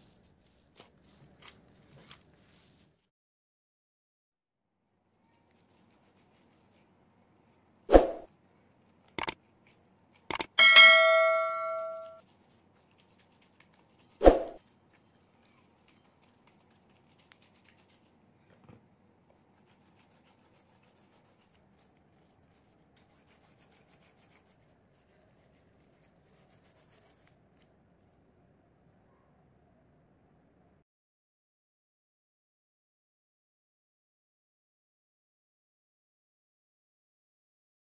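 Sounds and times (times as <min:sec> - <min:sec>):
electronic bell-like chime: 0:10.6 - 0:12.2.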